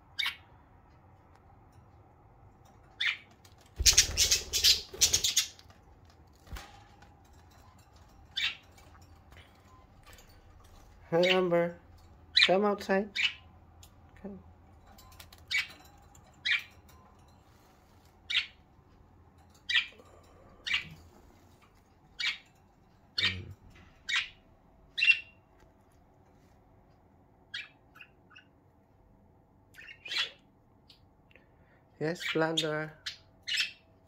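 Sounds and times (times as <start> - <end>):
budgerigar chirping: 27.5 - 28.5.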